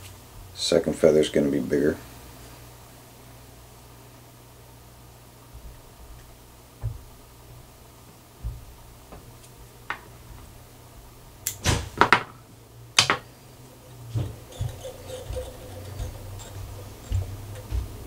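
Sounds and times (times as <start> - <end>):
soft handling knocks: 6.8 - 7.1, 8.4 - 9.3, 13.1 - 18.0.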